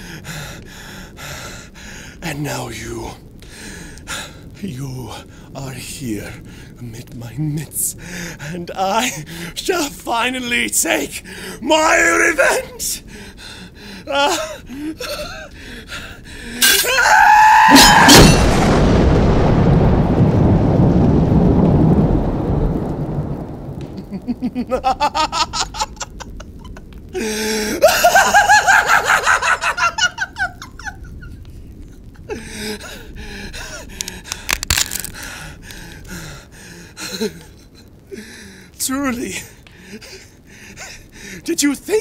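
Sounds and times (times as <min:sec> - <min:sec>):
thunderclap rumbling: 0:13.0 - 0:38.8
man laughing: 0:24.0 - 0:31.3.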